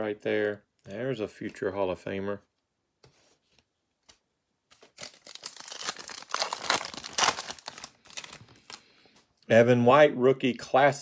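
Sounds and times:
foil wrapper tearing and crinkling: 0:04.8 - 0:08.8.

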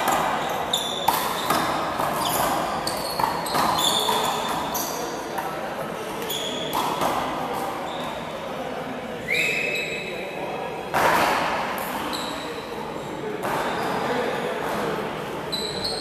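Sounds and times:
sneaker squeaks on court floor: 0:00.0 - 0:05.4, 0:06.2 - 0:08.3, 0:09.3 - 0:10.2, 0:11.9 - 0:12.7, 0:13.4 - 0:14.2, 0:15.5 - 0:16.0.

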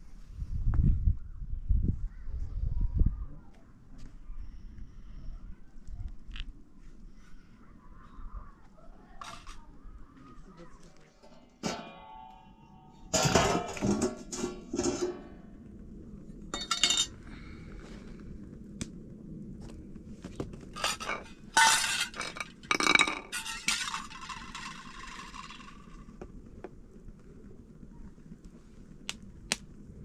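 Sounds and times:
dishes and utensils clinking: 0:11.2 - 0:15.3, 0:16.6 - 0:17.1, 0:20.8 - 0:25.6.

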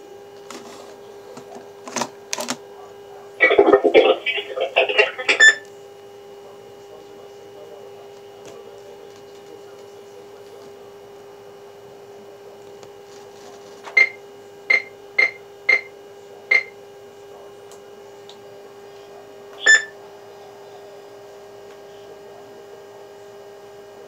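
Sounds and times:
steady low hum: 0:03.0 - 0:05.7
radio key beeps: 0:03.4 - 0:05.7, 0:19.6 - 0:19.9.

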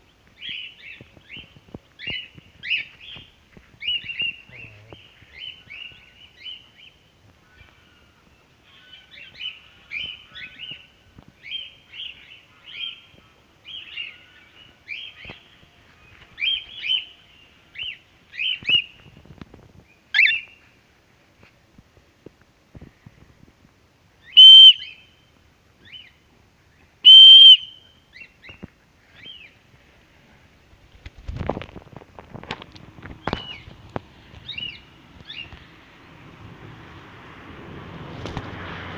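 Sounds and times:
cockatiel chirps: 0:20.2 - 0:20.5
bird wingbeats: 0:30.9 - 0:35.6.

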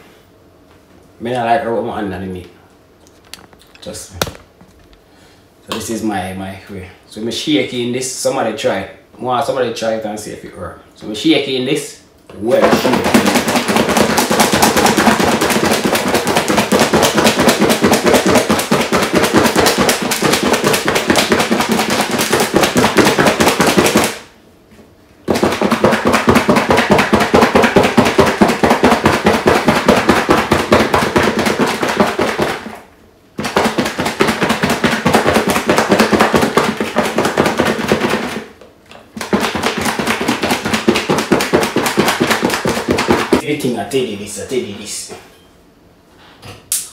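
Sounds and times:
chicken rattling in shaken plastic bowl: 0:12.5 - 0:24.2, 0:25.3 - 0:32.8, 0:33.4 - 0:38.5, 0:39.1 - 0:43.4.

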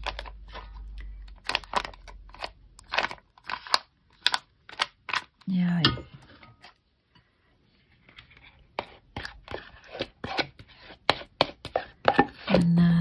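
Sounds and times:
metal spoon scraping plastic tub: 0:08.0 - 0:12.8.

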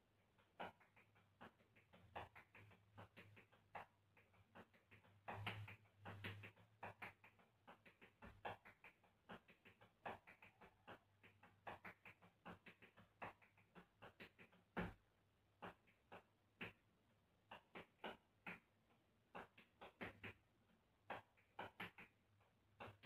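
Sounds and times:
tap shoes on hard floor: 0:14.1 - 0:15.0.

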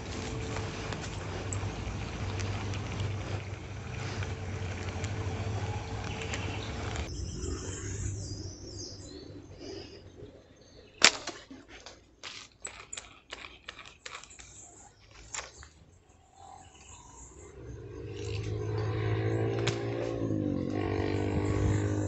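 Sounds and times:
footsteps crunching through dry leaves: 0:00.0 - 0:07.2
faint birds chirping: 0:00.0 - 0:22.0.

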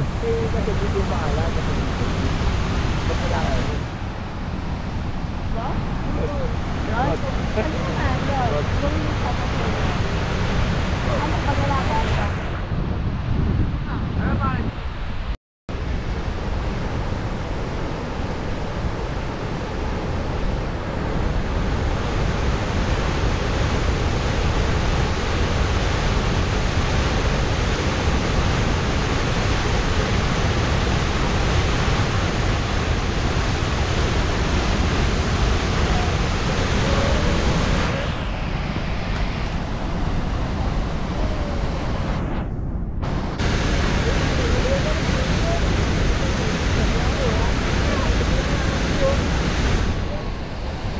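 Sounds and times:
waterfall roaring: 0:00.0 - 0:12.6, 0:15.8 - 0:42.2, 0:43.0 - 0:50.9.

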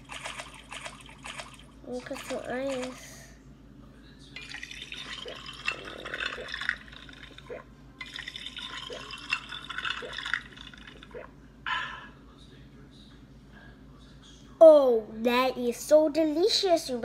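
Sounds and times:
liquid draining with gulps: 0:00.0 - 0:02.8, 0:04.4 - 0:11.4.

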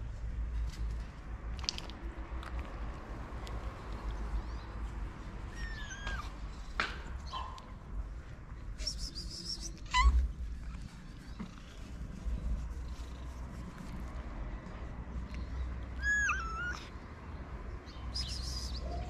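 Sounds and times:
cats meowing: 0:05.5 - 0:06.4, 0:09.7 - 0:10.7, 0:16.0 - 0:16.9.

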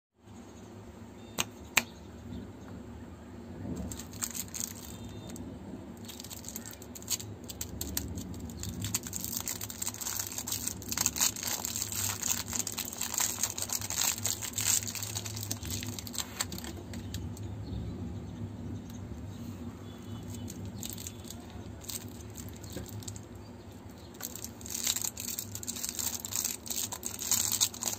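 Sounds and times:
plastic wrapper crinkling: 0:03.7 - 0:05.4, 0:06.0 - 0:17.5, 0:20.1 - 0:27.9.

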